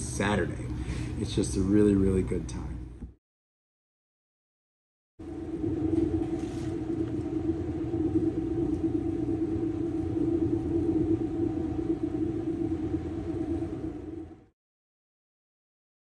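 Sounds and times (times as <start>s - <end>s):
kitchen machine hum: 5.2s - 14.5s.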